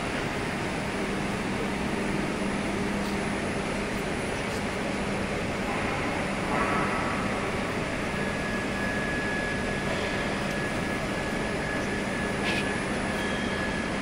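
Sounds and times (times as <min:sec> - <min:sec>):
machine mechanical hum: 0:00.0 - 0:14.0
thin high whine: 0:06.4 - 0:14.0.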